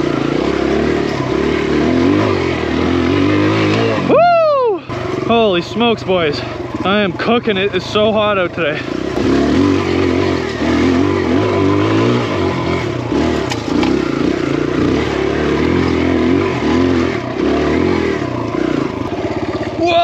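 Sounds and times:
dirt bike engine revving: 0:00.0 - 0:20.0.

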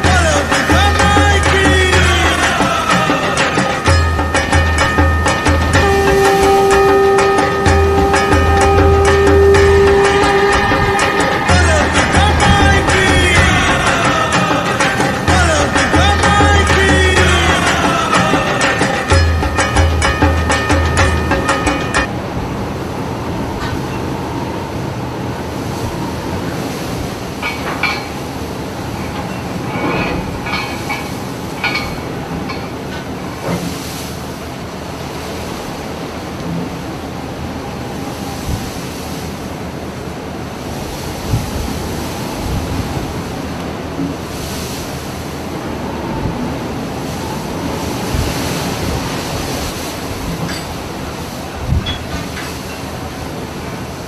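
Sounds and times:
barge engine rumble: 0:00.0 - 0:35.1.

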